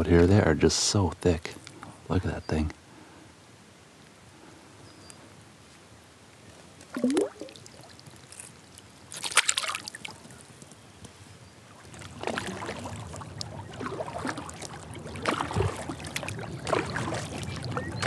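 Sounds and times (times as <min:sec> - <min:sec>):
water splash: 0:06.9 - 0:08.0, 0:09.1 - 0:10.2, 0:11.8 - 0:18.0
kayak paddle strokes in water: 0:11.6 - 0:18.0
water dripping off paddle: 0:11.9 - 0:18.0.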